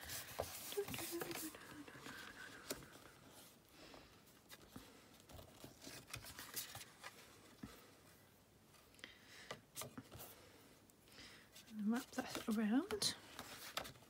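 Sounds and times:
paper rustling: 0.0s - 3.5s, 4.5s - 7.8s, 11.7s - 14.0s.

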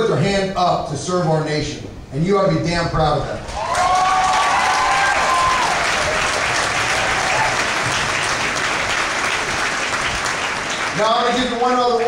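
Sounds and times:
person cheering: 3.5s - 7.8s
audience applauding: 3.5s - 12.0s.

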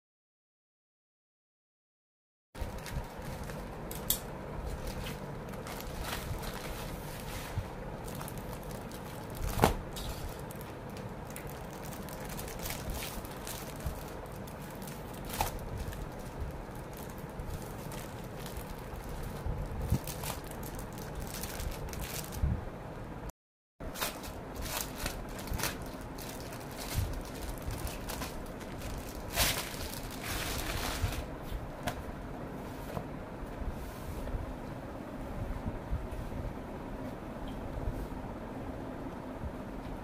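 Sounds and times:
plastic packaging crinkling: 2.6s - 4.0s, 4.7s - 7.3s, 8.0s - 22.4s, 23.9s - 31.3s
scissors cutting plastic mailer: 8.1s - 22.1s, 23.9s - 31.2s.

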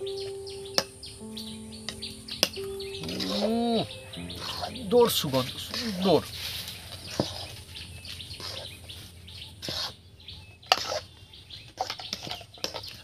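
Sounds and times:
birds chirping: 0.0s - 13.0s
metal spatula scraping a pan: 8.4s - 8.8s, 9.6s - 10.0s, 10.7s - 11.1s, 11.8s - 13.0s.

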